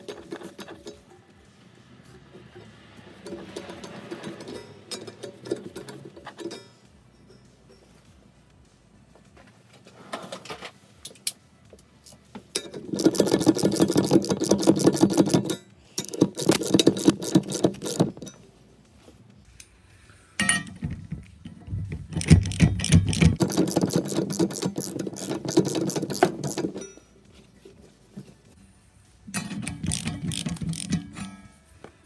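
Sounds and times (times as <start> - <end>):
ratchet wrench clicking: 12.0 - 18.4, 20.4 - 27.0, 29.3 - 31.4.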